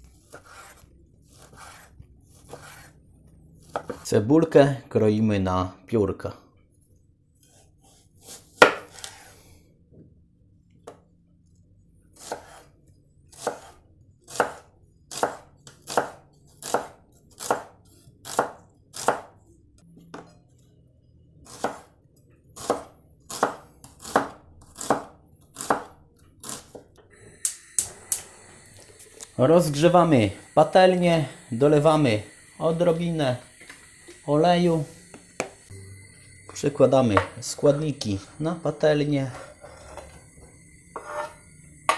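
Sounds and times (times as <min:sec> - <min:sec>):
knife slicing onion on wooden board: 0:00.1 - 0:03.0, 0:03.6 - 0:04.1, 0:07.4 - 0:09.3, 0:12.1 - 0:19.3, 0:21.4 - 0:26.9, 0:40.9 - 0:41.9
gas burner hissing: 0:27.1 - 0:41.9.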